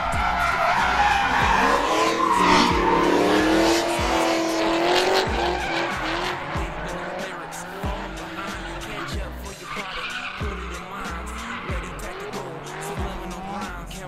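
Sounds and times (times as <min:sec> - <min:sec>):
car engines revving: 0:00.0 - 0:14.0
tyres squealing: 0:00.0 - 0:14.0.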